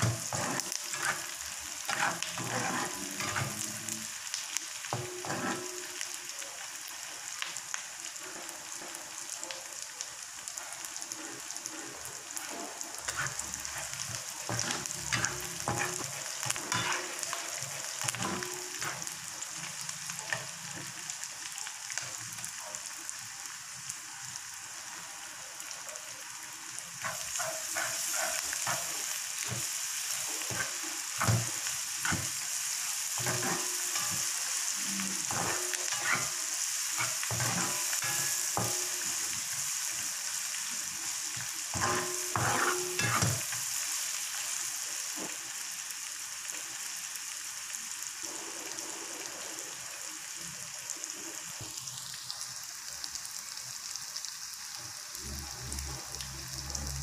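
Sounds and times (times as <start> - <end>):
utensil scraping a pan: 0.0 - 3.9, 5.2 - 5.8, 13.1 - 19.1, 33.2 - 34.4, 35.2 - 36.4, 41.8 - 43.5
food sizzling in oil: 0.0 - 57.0.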